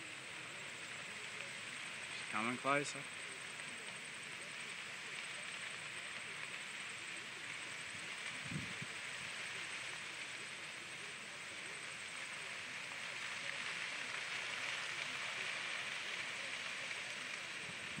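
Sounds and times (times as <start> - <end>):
grass fire crackling: 0.0 - 18.0.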